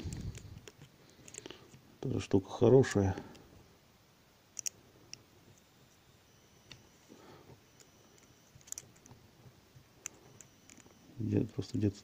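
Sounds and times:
metal needle clicking on plastic gears: 4.6s - 4.8s, 7.8s - 9.1s.

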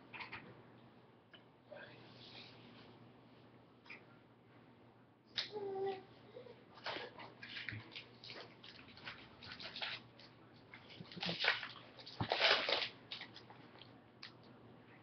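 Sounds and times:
card wrappers rustling and crinkling: 6.8s - 13.8s.

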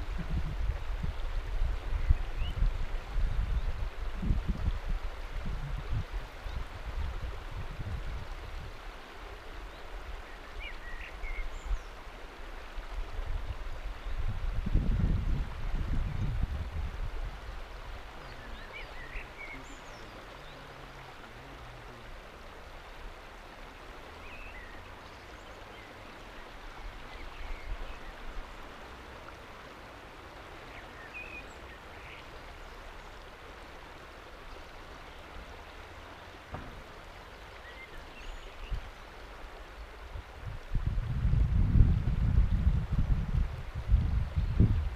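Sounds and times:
wind rumble on microphone: 0.0s - 19.4s, 38.0s - 44.9s
river water flowing over rock: 0.0s - 44.9s.

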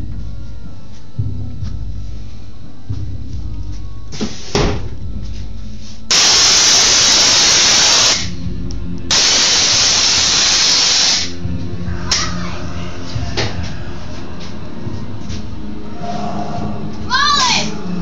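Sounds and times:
loud bursts of hissing: 4.2s - 4.8s, 6.1s - 8.4s, 9.1s - 11.4s.

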